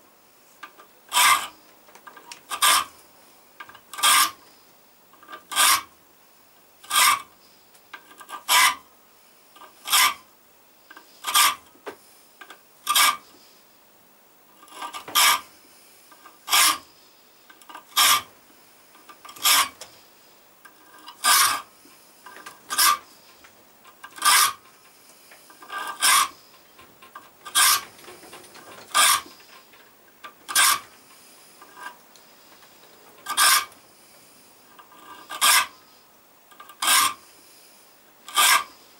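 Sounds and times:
file rasping on steel: 0:01.1 - 0:01.6, 0:02.5 - 0:02.9, 0:03.9 - 0:04.4, 0:05.2 - 0:05.9, 0:06.8 - 0:07.3, 0:08.2 - 0:08.8, 0:09.6 - 0:10.2, 0:11.0 - 0:11.7, 0:12.8 - 0:13.3, 0:14.6 - 0:15.5, 0:16.1 - 0:16.9, 0:17.7 - 0:18.3, 0:19.0 - 0:19.8, 0:20.8 - 0:23.3, 0:23.9 - 0:24.9, 0:25.5 - 0:26.5, 0:27.1 - 0:29.4, 0:30.5 - 0:31.0, 0:33.2 - 0:33.8, 0:34.8 - 0:35.9, 0:36.6 - 0:37.2, 0:38.3 - 0:38.8.

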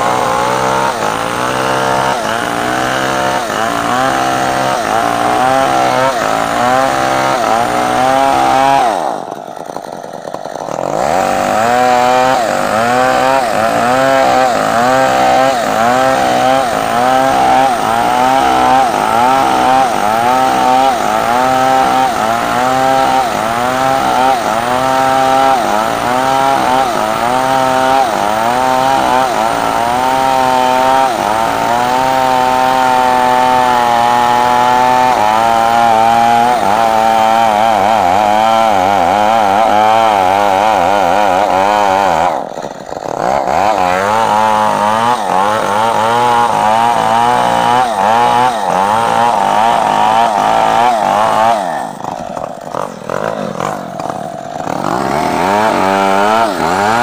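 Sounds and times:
chainsaw cutting timber: 0:00.0 - 0:57.0.

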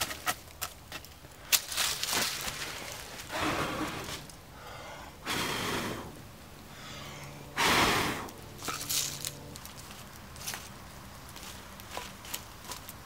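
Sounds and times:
breath-like rushes of air: 0:03.3 - 0:08.3.

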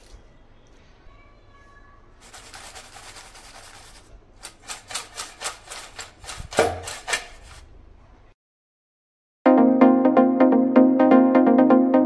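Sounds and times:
chips rattling in steel bowl: 0:02.2 - 0:07.6.

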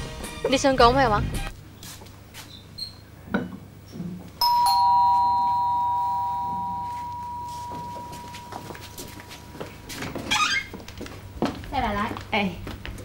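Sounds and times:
two-note doorbell chime: 0:04.4 - 0:09.7.

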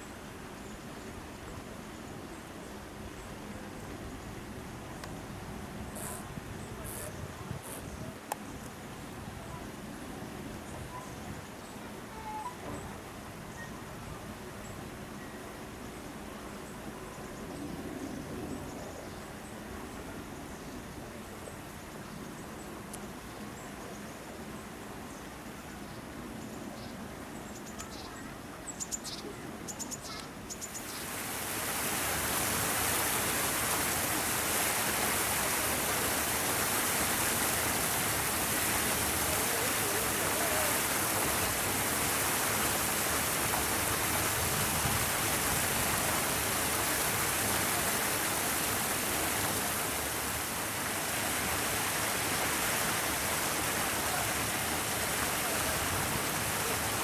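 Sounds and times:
steady rushing hiss: 0:15.6 - 0:57.0.

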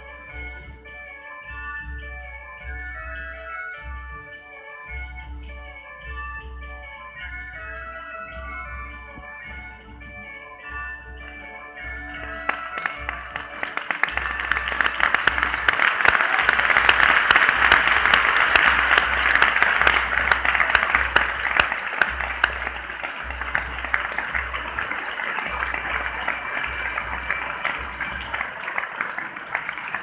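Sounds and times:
audience applauding: 0:12.0 - 0:30.0.

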